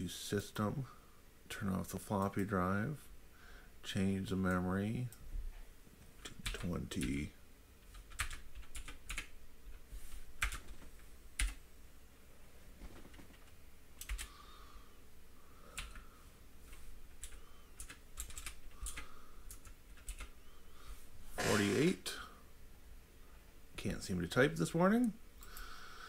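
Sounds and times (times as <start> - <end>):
keyboard typing: 6.2 - 7.2, 7.8 - 9.3, 10.4 - 10.8, 11.4 - 11.6, 13.1 - 14.3, 15.8 - 16.0, 16.7 - 20.4.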